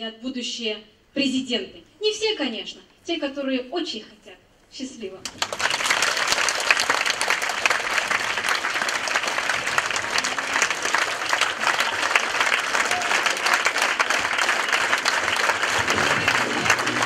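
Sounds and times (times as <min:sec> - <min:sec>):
audience applauding: 0:05.3 - 0:17.0.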